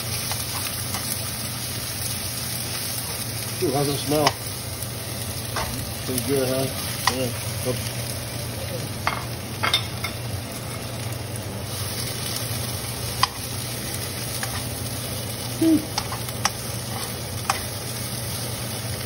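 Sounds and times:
vegetables sizzling in hot oil: 0.0 - 19.0
metal spoon clicking against pan: 15.9 - 16.6.

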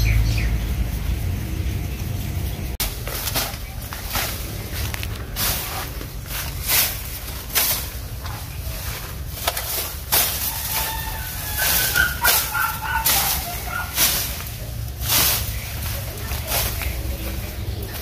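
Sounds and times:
low rumble: 0.0 - 12.6
vines rustling and tearing: 2.8 - 18.0
high-pitched whining calls: 10.4 - 14.5.

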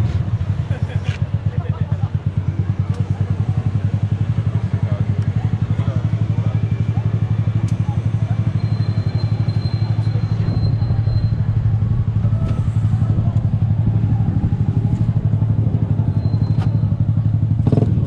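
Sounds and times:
scooter engine idling: 0.0 - 18.0.

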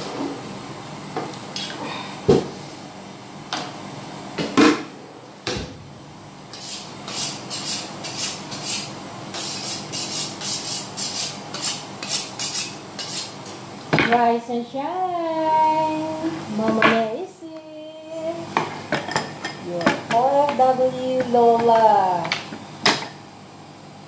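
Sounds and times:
knife scraping on honing steel: 6.5 - 13.4.

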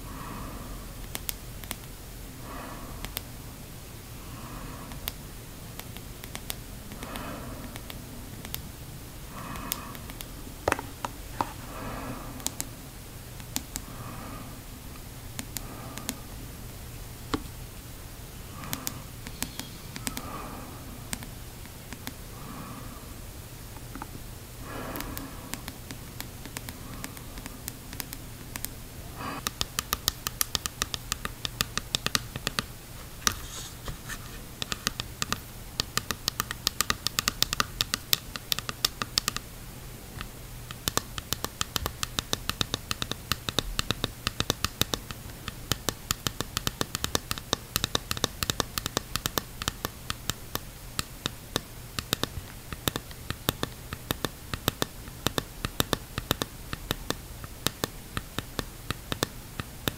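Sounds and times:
fingernails tapping on plastic mask: 9.4 - 11.6, 29.4 - 33.4, 34.6 - 39.4, 40.2 - 59.9.

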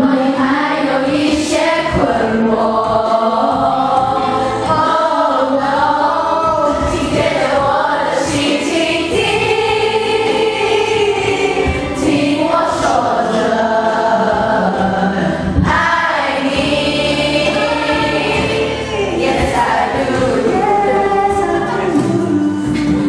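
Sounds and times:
person singing karaoke: 0.0 - 23.0
pop backing track: 0.0 - 23.0.

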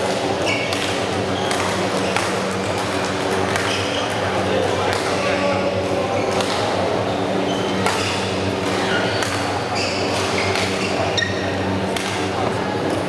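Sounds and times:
rackets hitting shuttlecock: 0.0 - 7.0, 7.6 - 13.0
low hum in hall: 0.0 - 13.0
shoes squeaking on floor: 0.4 - 4.2, 7.4 - 11.7.

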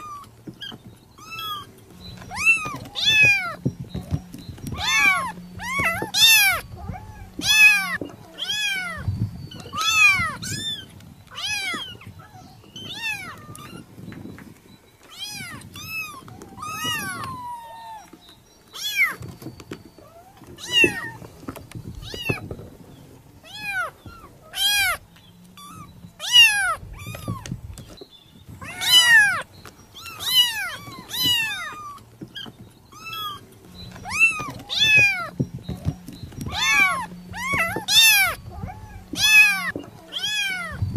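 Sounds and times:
cat meowing: 2.3 - 3.6, 4.7 - 13.8, 15.1 - 18.1, 20.2 - 21.2, 23.4 - 25.0, 25.6 - 27.5, 28.6 - 29.4, 30.0 - 33.4, 34.0 - 35.4, 36.5 - 40.8.

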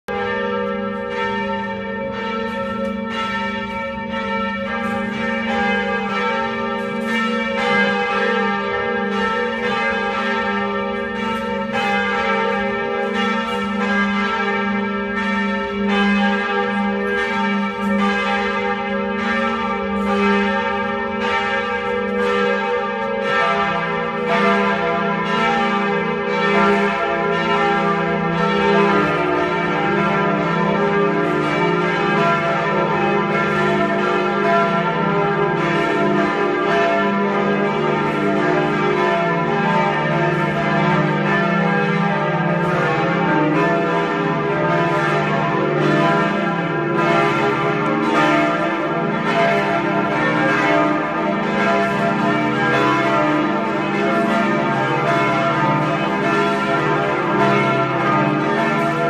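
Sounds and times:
church bells pealing: 0.0 - 59.0
deep bell ringing: 0.1 - 43.8.

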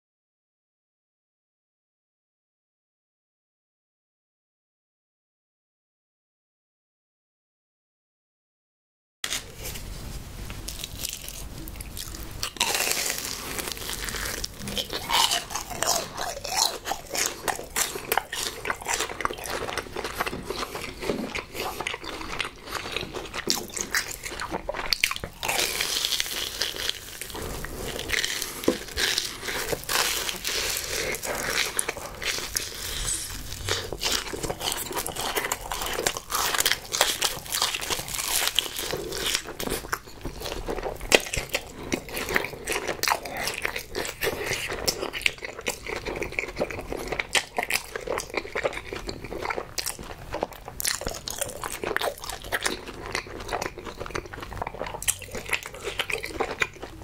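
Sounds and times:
crunchy food biting and chewing: 10.6 - 57.0.

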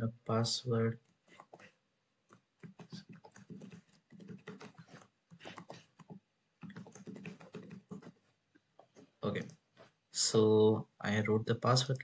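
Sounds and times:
computer keyboard typing: 1.3 - 8.2.

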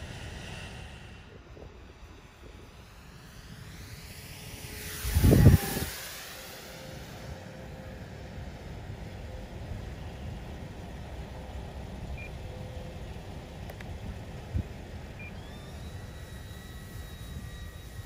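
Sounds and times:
low rumble: 0.0 - 6.4
high motor whine: 0.0 - 18.0
model airplane motor humming: 1.8 - 18.0.

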